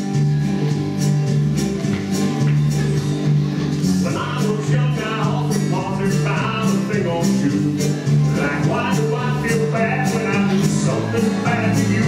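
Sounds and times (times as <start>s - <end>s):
song with guitar bass and beat: 0.0s - 12.0s
person singing: 4.0s - 12.0s.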